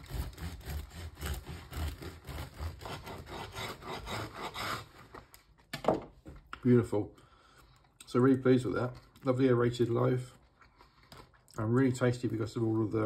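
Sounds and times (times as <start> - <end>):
knife sawing through bread: 0.0 - 5.1.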